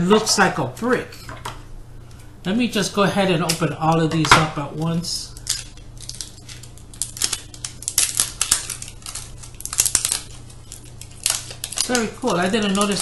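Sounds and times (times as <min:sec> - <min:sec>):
faint steady hum: 0:00.0 - 0:13.0
plastic packaging crinkling: 0:04.7 - 0:13.0.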